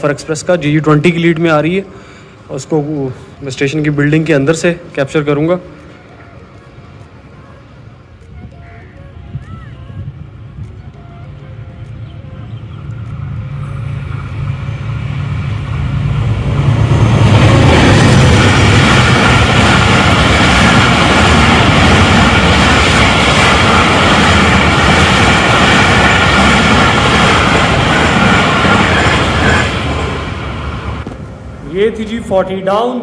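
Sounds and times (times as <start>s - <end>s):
diesel train passing: 0.0s - 9.4s, 10.0s - 33.0s
train wheels rushing on rails: 9.4s - 33.0s.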